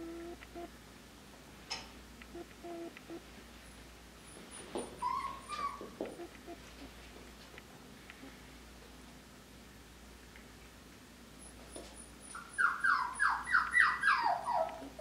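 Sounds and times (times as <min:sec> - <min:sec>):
sharp clicks: 0:00.1 - 0:00.7, 0:01.7 - 0:03.2
puppy whining: 0:04.4 - 0:06.8, 0:11.4 - 0:15.0.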